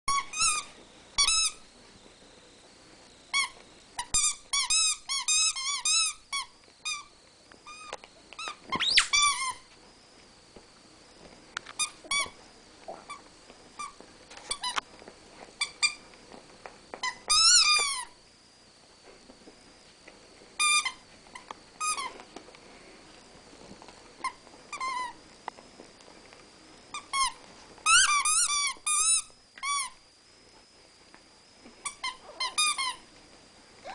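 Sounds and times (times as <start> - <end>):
dogs squealing and yipping: 8.4 - 9.6, 32.0 - 33.0.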